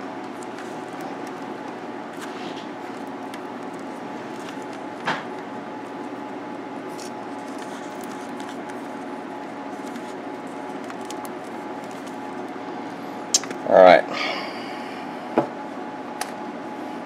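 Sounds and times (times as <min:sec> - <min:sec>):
electrical tape clicks and crackle: 0:00.0 - 0:12.6, 0:13.3 - 0:13.7
background hum of held tones: 0:00.0 - 0:17.0.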